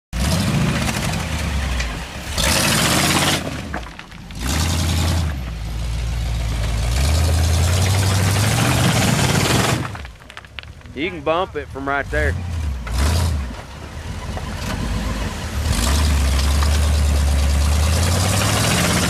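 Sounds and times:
engine revving hard: 0.2 - 3.7, 4.4 - 5.4, 6.2 - 10.0, 11.8 - 19.0.

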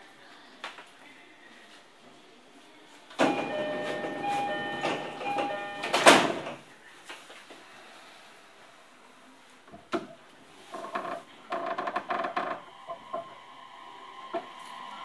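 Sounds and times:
repeating chime: 3.2 - 6.1
doors shutting with thud: 3.2 - 6.6
train doors sliding: 3.2 - 6.6.

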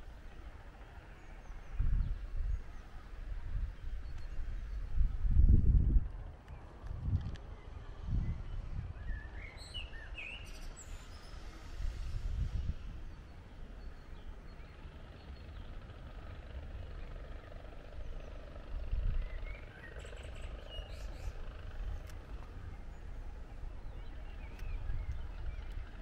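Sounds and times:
low uneven street rumble: 0.0 - 26.0
faint clicks: 4.1 - 4.4, 21.7 - 22.6, 24.4 - 26.0.

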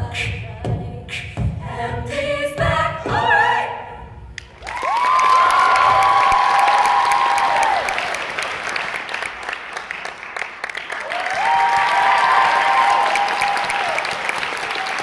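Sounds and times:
small audience applauding: 4.4 - 15.0
high whooping cheer: 4.6 - 8.5, 10.9 - 15.0.

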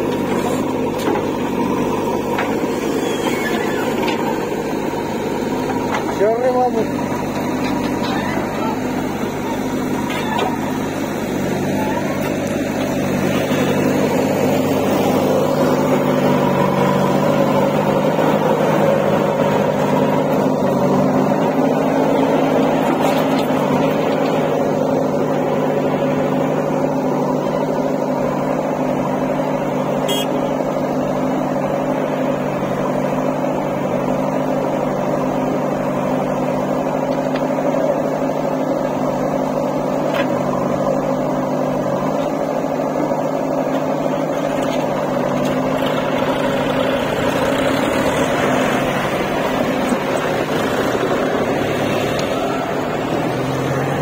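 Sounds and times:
diesel engines running: 0.0 - 54.0.

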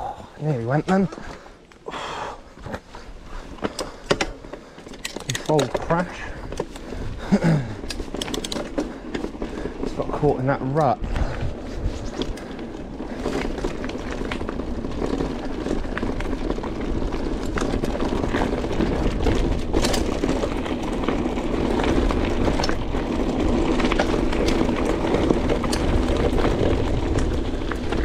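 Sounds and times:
bike rattling and clicking: 0.1 - 28.0
bike tyres crunching over stones: 0.1 - 28.0.

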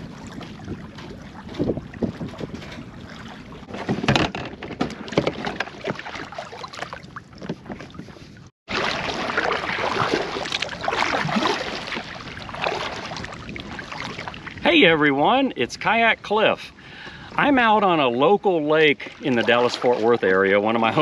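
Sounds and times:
wind on microphone: 0.0 - 6.4, 7.2 - 16.2
paddle splashing in water: 0.0 - 14.6, 18.8 - 21.0.

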